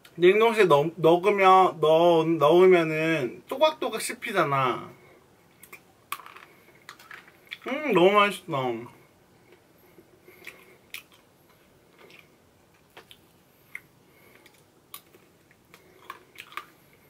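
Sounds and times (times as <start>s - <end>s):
quiet chewing: 9.4s - 17.0s.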